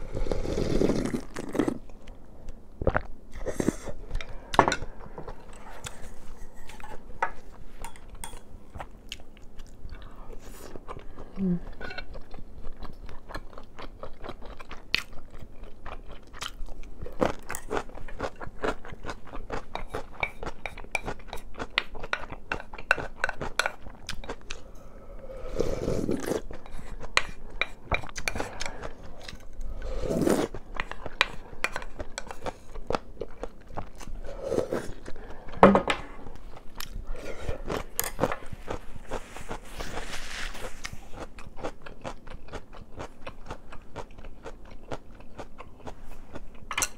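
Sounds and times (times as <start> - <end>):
chewing and crunching: 2.8 - 24.8, 36.2 - 46.9.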